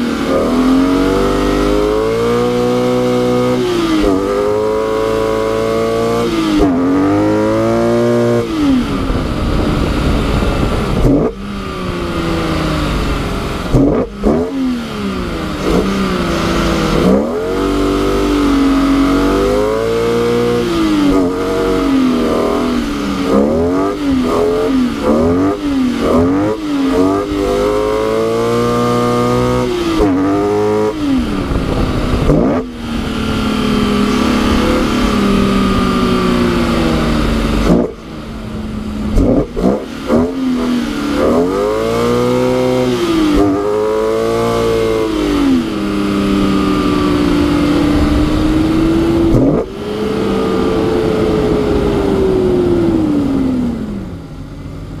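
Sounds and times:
car engine revving: 0.0s - 55.0s
steady rushing noise: 0.0s - 55.0s.

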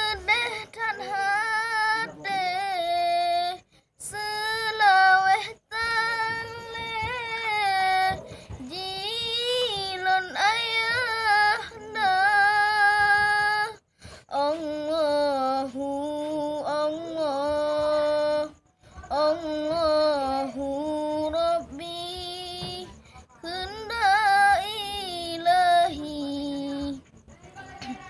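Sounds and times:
boy singing solo: 0.0s - 18.5s.

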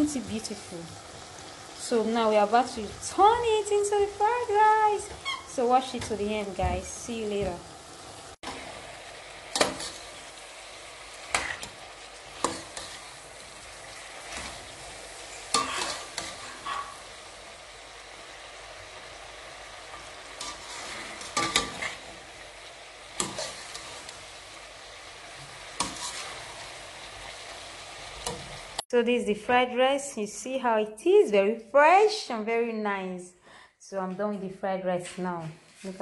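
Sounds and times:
vegetables sizzling in frying pan: 0.0s - 28.9s
spoon scraping and knocking pan: 9.5s - 10.2s, 11.3s - 11.8s, 12.4s - 13.2s, 14.3s - 17.0s, 20.4s - 22.1s, 23.2s - 24.2s, 25.8s - 26.5s.

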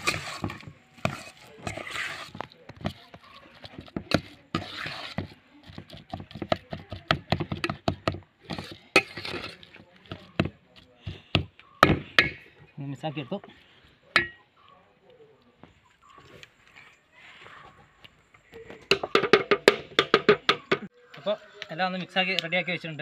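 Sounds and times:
spoon scraping bowl: 0.0s - 6.5s, 8.4s - 10.4s.

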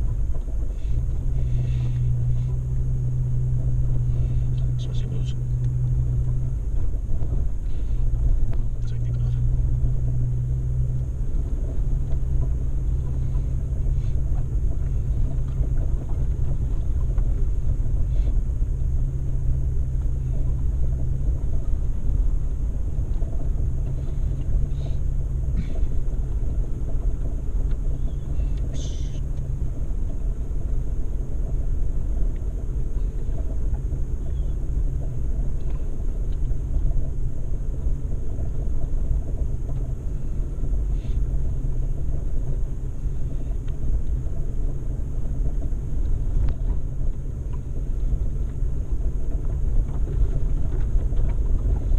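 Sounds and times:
vehicle engine droning: 0.0s - 51.9s
faint clicks and knocks: 31.4s - 51.9s.

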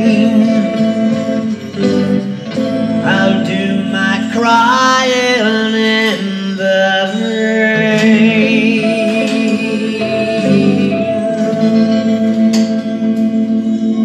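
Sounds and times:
man singing into a microphone: 0.0s - 2.0s, 2.9s - 12.0s
recorded backing music: 0.0s - 14.0s.

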